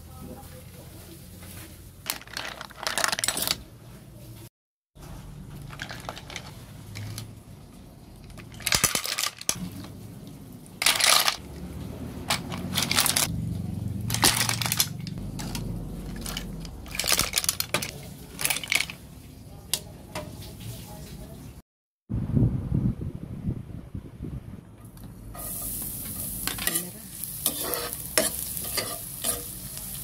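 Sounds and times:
clam shells clinking in metal basin: 8.3s - 9.8s, 10.8s - 11.4s, 12.3s - 13.3s, 14.1s - 19.0s.

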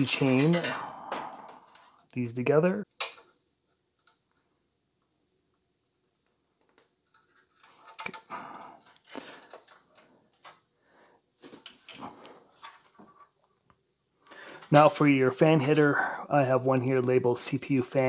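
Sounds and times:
cables rustling: 6.2s - 10.8s.

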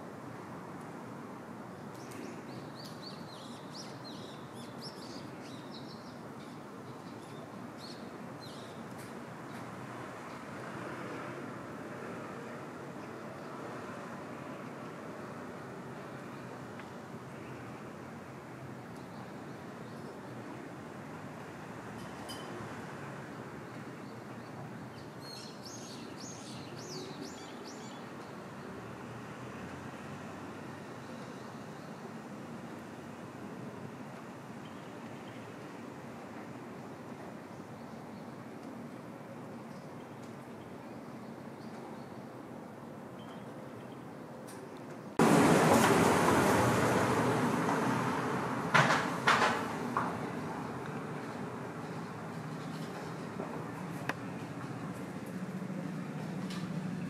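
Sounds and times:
outdoor background hum: 0.0s - 57.0s.

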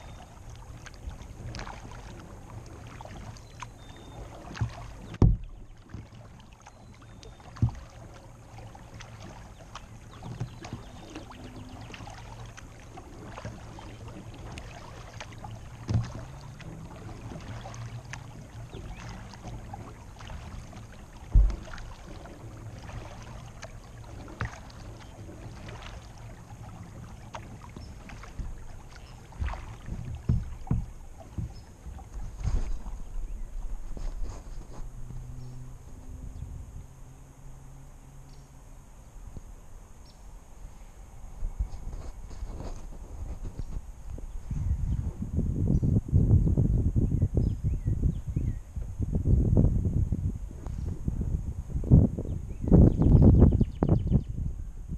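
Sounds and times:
water lapping against kayak hull: 0.0s - 54.9s
dull knocks on hull: 4.4s - 6.2s, 7.5s - 8.0s, 10.1s - 12.0s, 14.5s - 26.2s, 26.8s - 33.1s.

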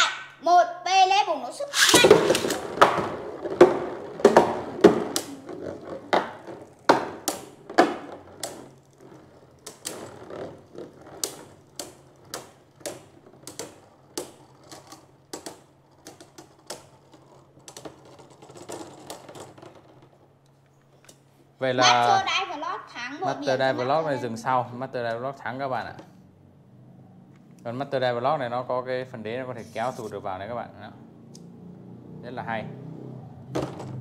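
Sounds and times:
spinning tops clacking: 1.7s - 2.9s
spinning tops grinding together: 1.7s - 20.3s.

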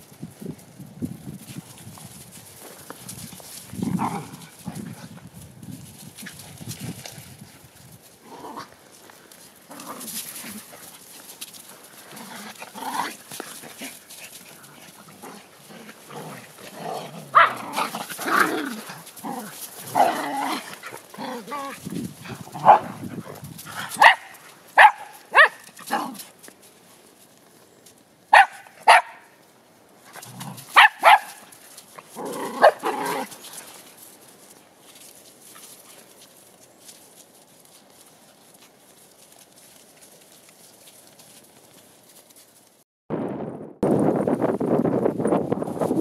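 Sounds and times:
dogs yipping and grumbling: 12.0s - 26.3s, 30.1s - 33.6s
dog barking sharply: 24.0s - 25.6s, 28.3s - 29.3s, 30.8s - 31.4s.

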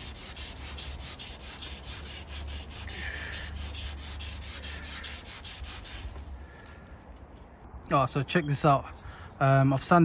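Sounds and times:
sandpaper rubbing: 0.0s - 6.8s.

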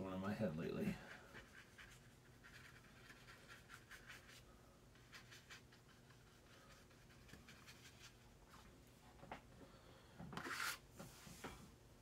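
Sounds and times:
low room hum: 0.0s - 12.0s
paintbrush scratching on paper: 0.8s - 8.2s, 10.4s - 10.8s.

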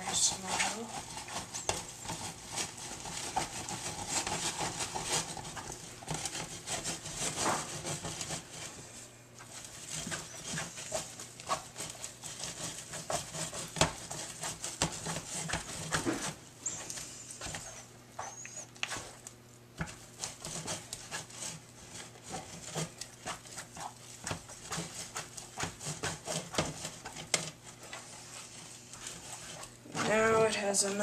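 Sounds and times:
spoon scraping and squelching dough: 0.0s - 31.0s.

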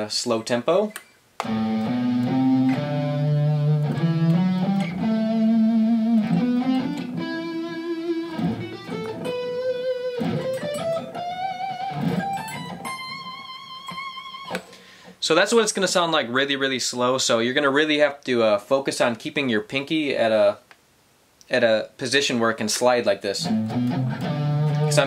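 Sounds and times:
electric guitar playing a scale: 1.4s - 14.6s, 23.4s - 25.0s.

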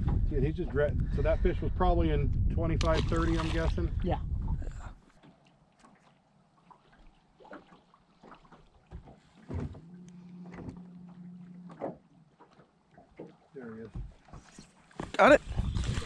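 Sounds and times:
steady low hum: 9.7s - 12.3s.

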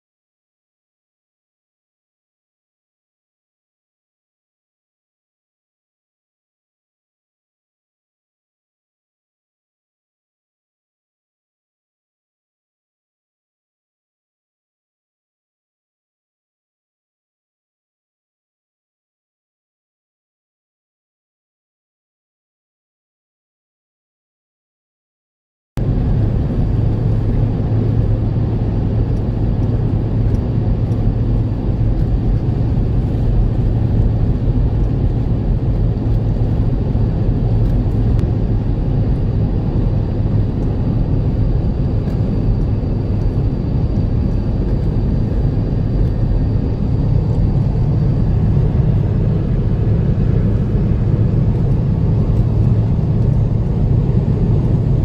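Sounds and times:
vehicle engine and road noise: 25.8s - 55.0s.

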